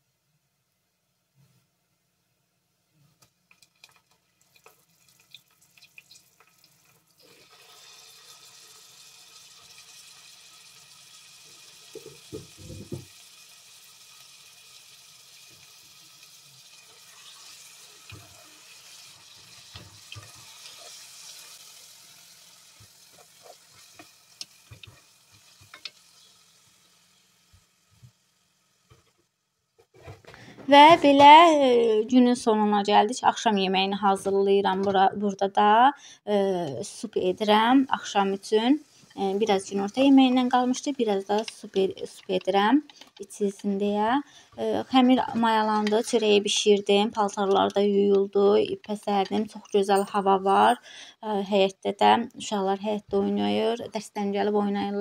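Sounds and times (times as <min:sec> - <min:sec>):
meat sizzling in hot oil: 0:03.6 - 0:29.0
wooden spoon stirring and knocking: 0:11.9 - 0:13.1, 0:19.2 - 0:21.2, 0:39.1 - 0:43.6, 0:44.5 - 0:46.5.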